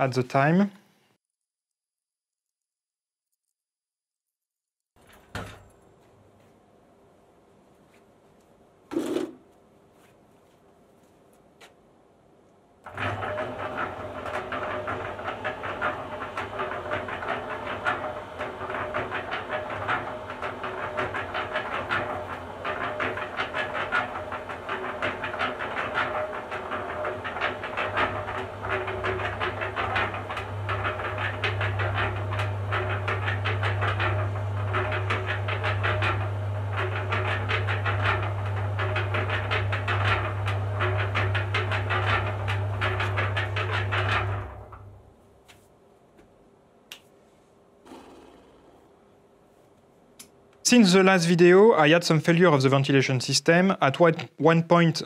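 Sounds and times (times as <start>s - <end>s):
cement mixer drum clattering: 12.9s - 45.1s.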